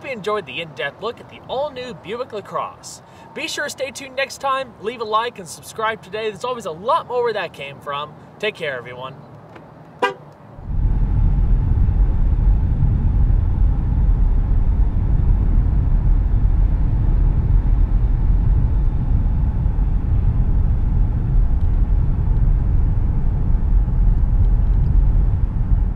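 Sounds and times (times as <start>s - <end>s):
car cabin road rumble: 9.4s - 25.9s.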